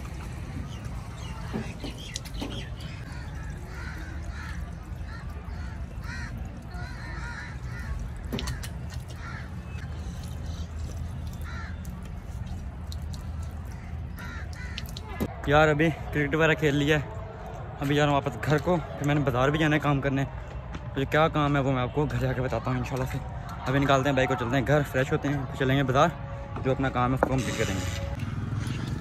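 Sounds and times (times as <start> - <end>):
birds calling: 0.0 - 15.1.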